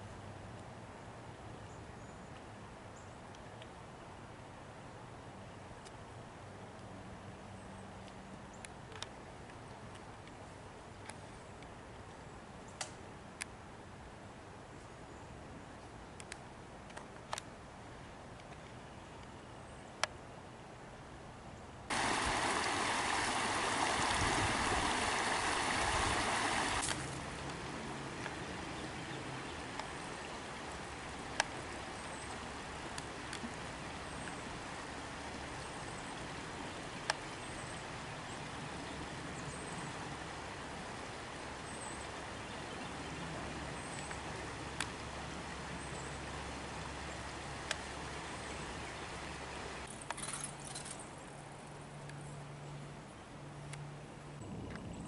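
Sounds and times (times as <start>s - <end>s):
stream water rushing: 21.9s - 51.0s.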